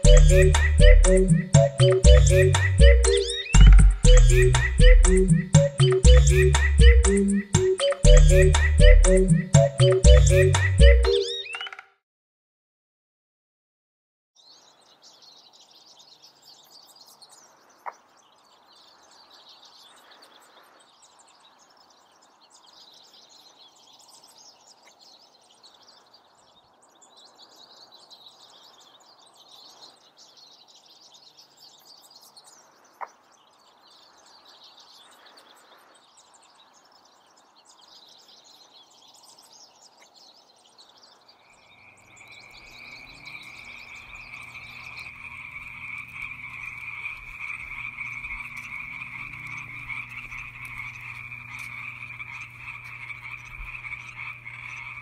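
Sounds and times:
frogs calling in chorus: 0:41.4 - 0:55.0
nearby frog call: 0:42.4 - 0:55.0.

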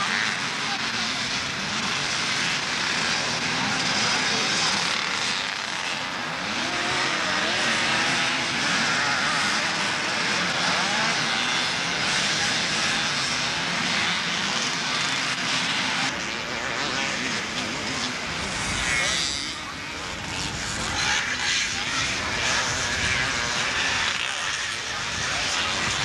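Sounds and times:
motorcycle engines revving: 0:00.0 - 0:26.0.

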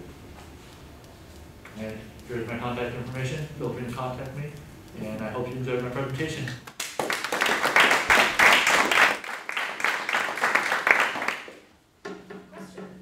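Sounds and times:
audience applauding: 0:06.7 - 0:11.6.

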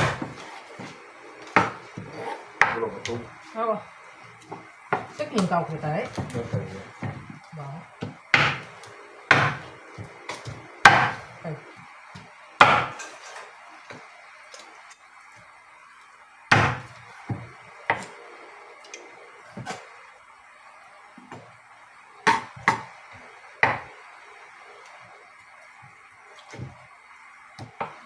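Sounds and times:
knife chopping on wooden board: 0:00.0 - 0:00.9, 0:01.5 - 0:02.9, 0:04.5 - 0:07.4, 0:08.0 - 0:11.3, 0:12.2 - 0:13.1, 0:16.5 - 0:18.1, 0:22.2 - 0:23.0, 0:23.6 - 0:23.9, 0:27.6 - 0:28.0.

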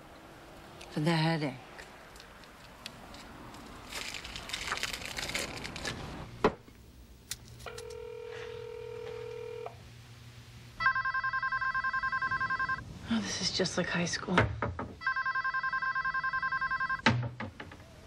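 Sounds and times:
telephone ringing: 0:07.7 - 0:09.8, 0:10.8 - 0:12.8, 0:15.0 - 0:17.0.

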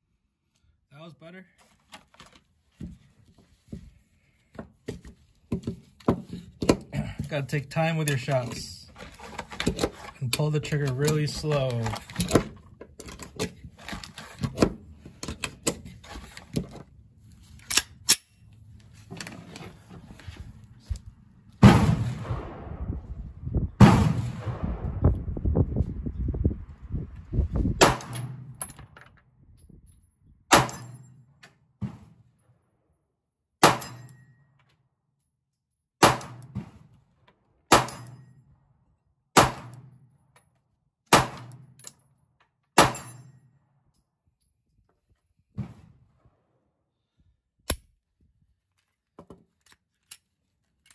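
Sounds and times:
pistol shots: 0:21.6 - 0:22.9, 0:23.8 - 0:25.1, 0:27.8 - 0:28.4, 0:30.5 - 0:31.0, 0:33.6 - 0:34.1, 0:36.0 - 0:36.5, 0:37.7 - 0:38.2, 0:39.4 - 0:39.9, 0:41.1 - 0:41.6, 0:42.8 - 0:43.2
heavy booms with rumbling tails: 0:21.6 - 0:27.8.

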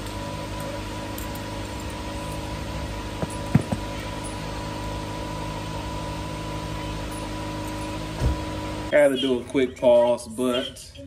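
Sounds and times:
fan running with hum: 0:00.0 - 0:11.0.

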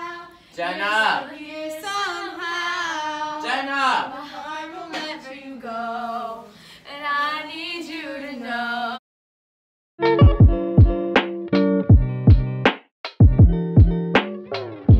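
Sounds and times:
plucked guitar chords: 0:10.0 - 0:12.6
heavy beats: 0:10.0 - 0:14.9.

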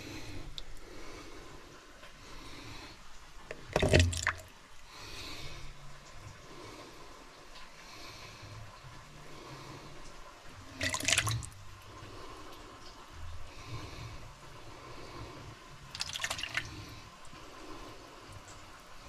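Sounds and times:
broth splashing from a ladle: 0:03.5 - 0:04.5, 0:10.7 - 0:11.6, 0:15.9 - 0:16.9.

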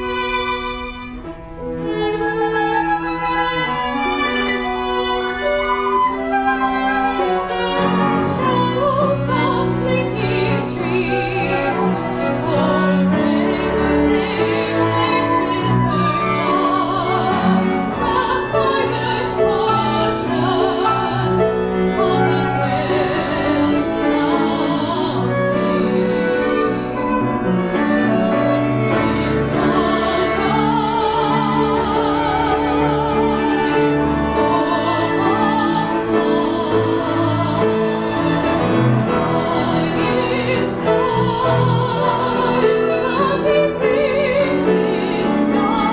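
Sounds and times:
chamber ensemble playing: 0:00.0 - 0:45.9
woman singing with vibrato: 0:08.2 - 0:26.5, 0:39.2 - 0:45.9.

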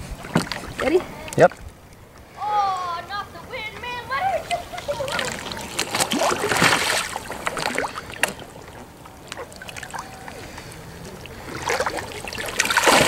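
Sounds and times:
water splashing: 0:00.0 - 0:01.9, 0:02.6 - 0:13.0
water lapping and dripping: 0:00.0 - 0:02.3, 0:03.6 - 0:13.0.

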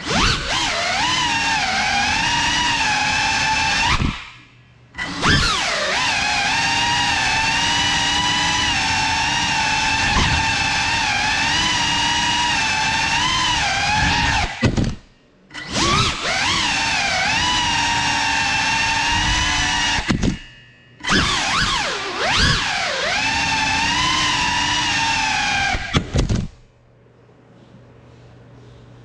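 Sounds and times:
drone motors whining: 0:00.0 - 0:26.5.

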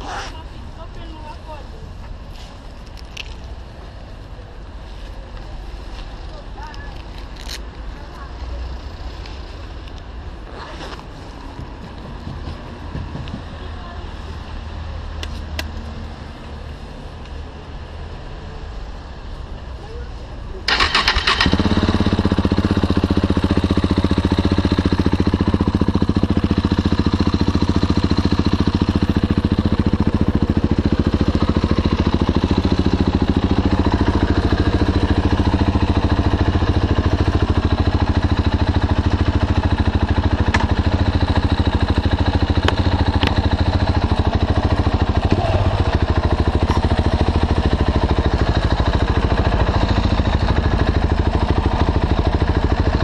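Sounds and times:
motorcycle engine idling: 0:20.7 - 0:53.0.

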